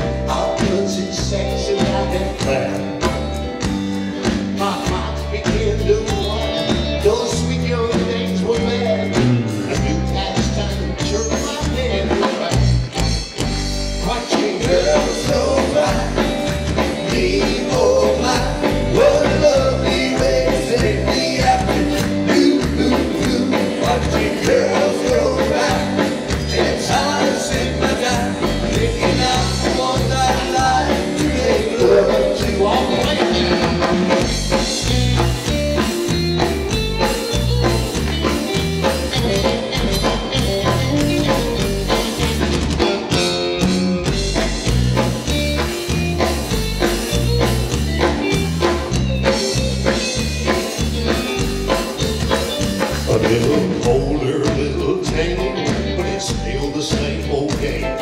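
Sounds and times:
man singing: 0.0 - 3.4, 4.5 - 13.0, 14.0 - 34.3, 52.8 - 58.0
rock and roll band playing: 0.0 - 58.0.

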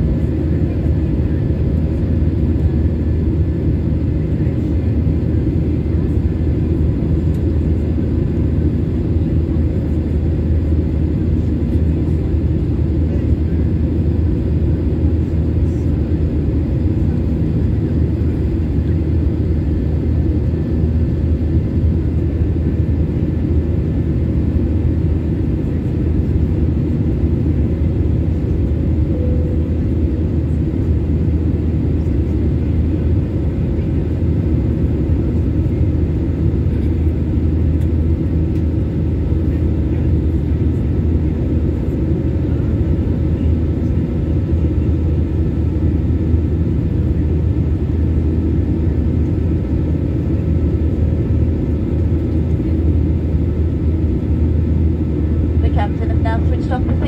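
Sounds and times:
jet engines and airflow rumble: 0.0 - 57.0
faint whining tones: 29.1 - 30.5.

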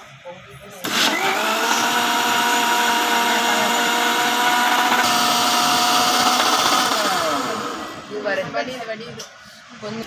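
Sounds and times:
mixer grinder motor whine: 0.9 - 8.2.

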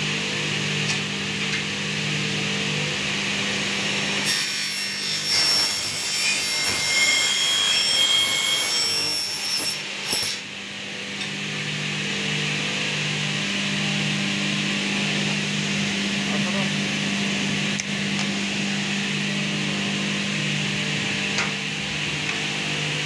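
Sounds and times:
power saw cutting metal: 4.1 - 10.5.

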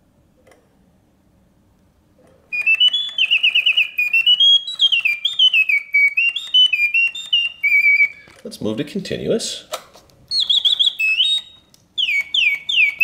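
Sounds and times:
mechanical bird whistling song: 2.5 - 8.4, 10.3 - 13.0.

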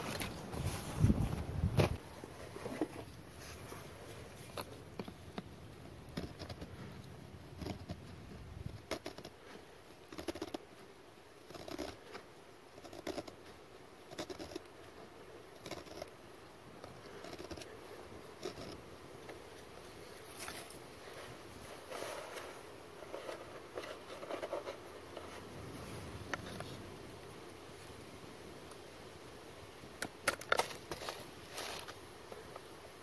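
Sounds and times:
knife shaving wood: 11.5 - 14.7, 16.8 - 26.8.

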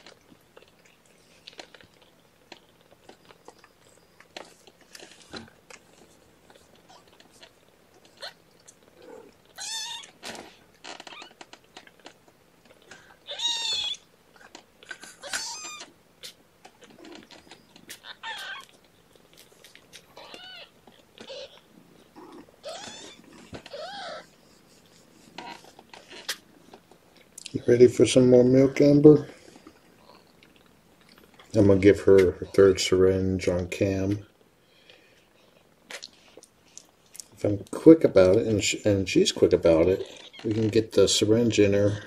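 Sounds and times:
kittens mewing: 6.8 - 10.4, 12.8 - 14.1, 14.8 - 18.8, 20.0 - 26.7.

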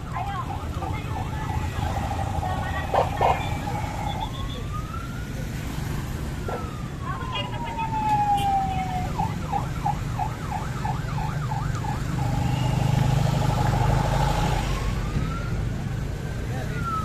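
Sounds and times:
electronic siren wailing and yelping: 0.4 - 4.8, 6.5 - 12.7.

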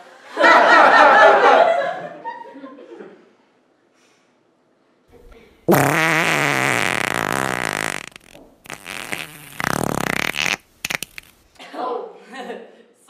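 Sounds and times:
fart with wavering pitch: 5.7 - 11.3.

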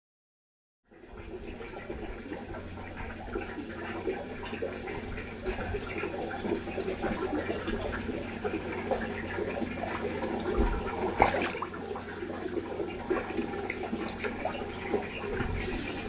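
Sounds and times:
fish slurping and gulping: 1.2 - 16.0
water splash: 10.0 - 12.2.

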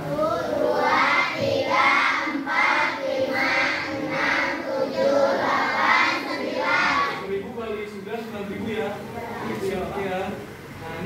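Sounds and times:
children chanting in unison: 0.0 - 7.2.

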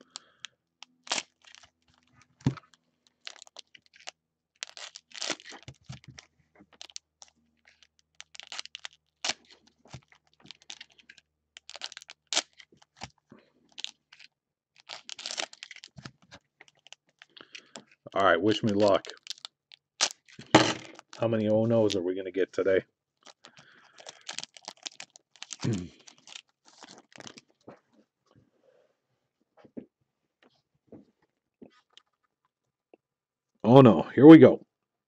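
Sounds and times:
plastic wrapper tearing and crinkling: 0.0 - 22.0, 23.2 - 27.6.

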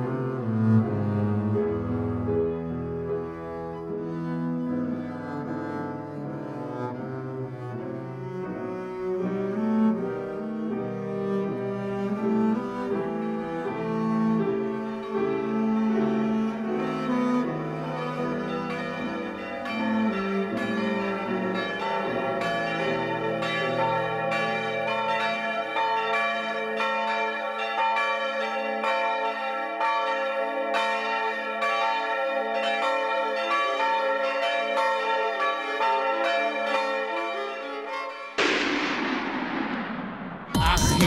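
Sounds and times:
church bells pealing: 11.4 - 38.4
sudden loud burst of noise: 38.4 - 41.0.

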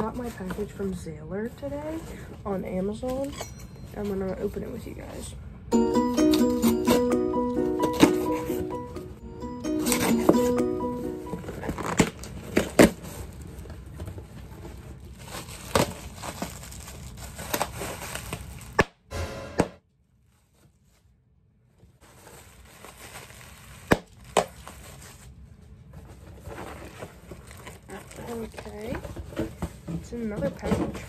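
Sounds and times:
plastic wrapping crinkling: 11.4 - 18.8, 21.8 - 31.0.

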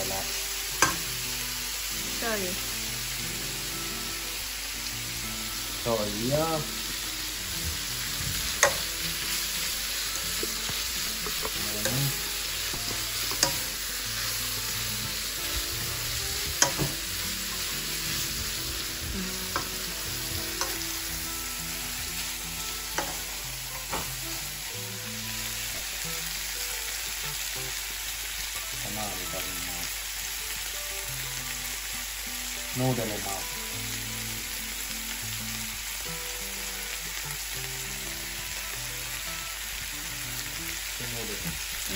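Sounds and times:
food sizzling in a frying pan: 0.0 - 41.9
plastic spatula tapping a pan: 8.6 - 8.9, 16.6 - 17.0.

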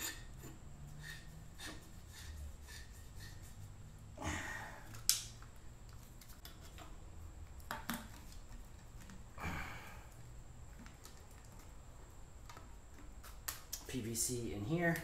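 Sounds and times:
pipe threads scraping: 0.0 - 4.1.

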